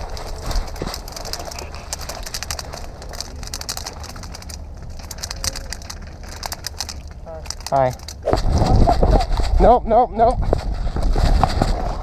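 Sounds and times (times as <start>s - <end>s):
sharp clicks and snaps: 0.0s - 8.5s
low steady rumble: 0.0s - 12.0s.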